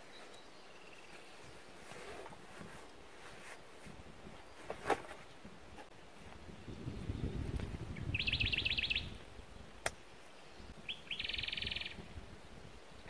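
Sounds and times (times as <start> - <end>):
songbird trilling: 7.9 - 9.2, 10.5 - 12.0.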